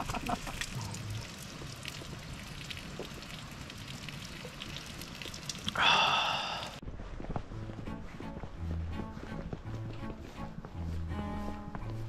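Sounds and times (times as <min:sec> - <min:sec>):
light rain pattering on a tarp: 0:00.0 - 0:07.6.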